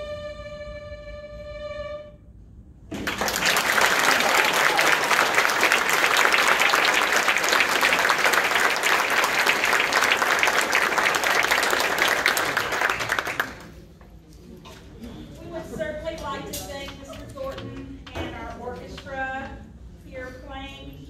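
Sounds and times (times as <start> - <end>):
audience applauding: 2.9 - 13.9.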